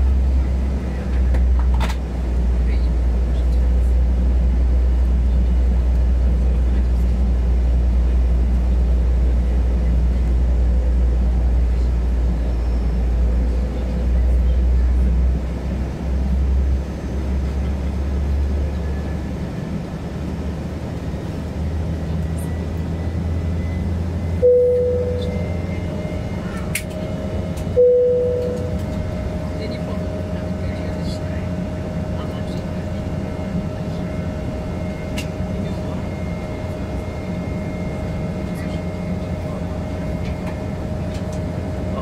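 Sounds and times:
jet engine cabin rumble: 0:00.0 - 0:42.0.

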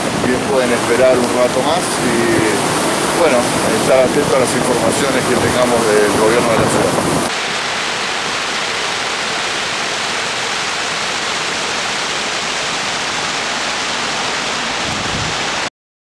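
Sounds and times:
water gushing down channel: 0:00.0 - 0:15.7.

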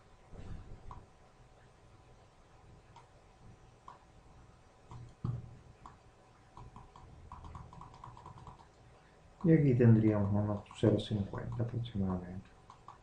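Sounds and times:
mouse clicking: 0:02.9 - 0:03.1, 0:03.8 - 0:04.1, 0:04.9 - 0:08.8, 0:09.4 - 0:13.0.

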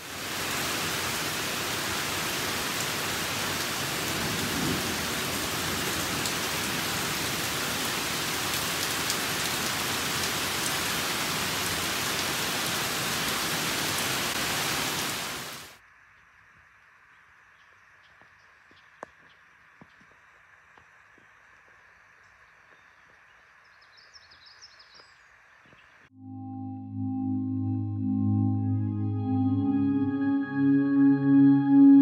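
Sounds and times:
heavy rain pouring: 0:00.0 - 0:15.8.

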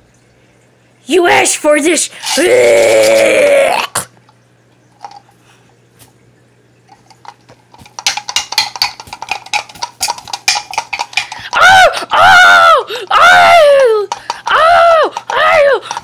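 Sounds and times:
plastic toys knocking together: 0:07.7 - 0:12.0, 0:13.8 - 0:16.0.

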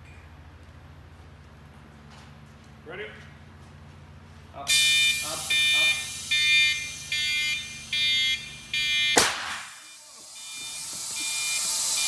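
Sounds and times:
electronic beeping: 0:04.7 - 0:09.2, 0:09.8 - 0:12.0
air hissing: 0:05.1 - 0:08.5, 0:09.2 - 0:12.0
air cannon blast: 0:09.2 - 0:09.8.

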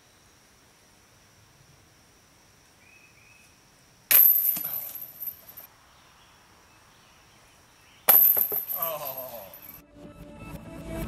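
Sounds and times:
discs striking metal basket: 0:04.1 - 0:05.7, 0:08.1 - 0:09.8.

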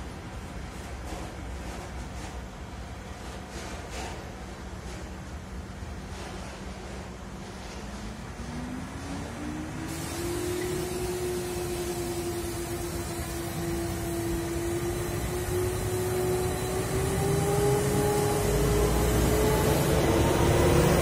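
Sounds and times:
diesel freight train passing: 0:07.1 - 0:21.0.

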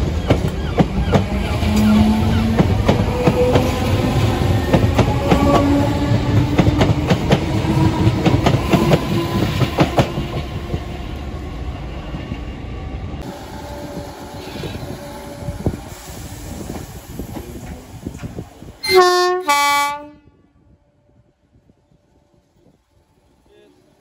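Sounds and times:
train motor whine: 0:00.4 - 0:11.0.

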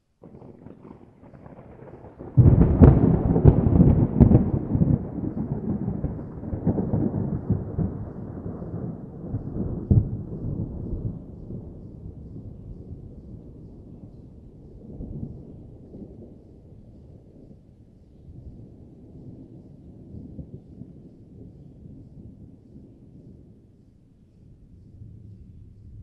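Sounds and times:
thunder rumbling and cracking: 0:00.2 - 0:17.8.

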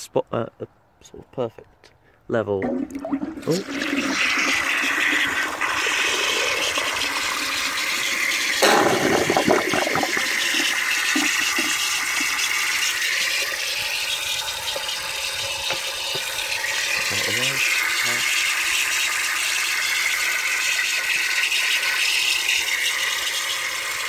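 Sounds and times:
toilet cistern flushing: 0:02.6 - 0:24.0.

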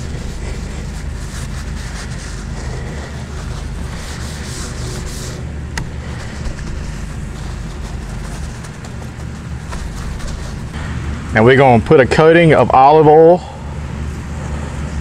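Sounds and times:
paper towel rustling: 0:00.0 - 0:10.8
steady low hum: 0:00.0 - 0:15.0.

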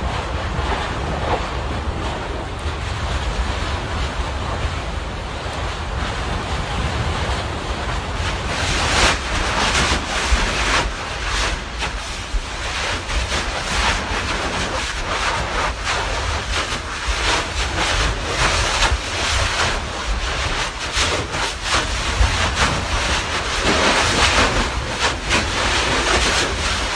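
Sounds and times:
lava spatter bursts: 0:05.5 - 0:26.9.

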